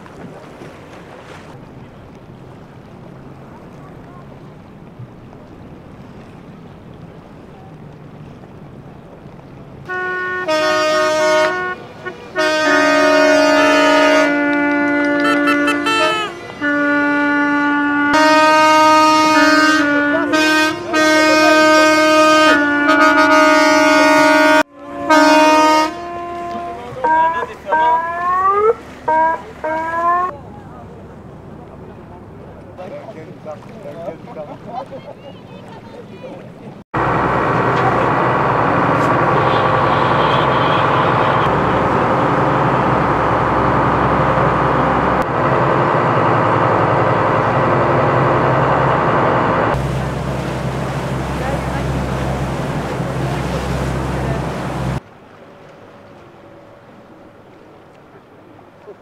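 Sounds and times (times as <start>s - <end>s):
diesel engines droning: 0.0s - 33.4s, 36.5s - 59.0s
boat air horns blasting: 9.8s - 30.3s, 37.0s - 55.0s.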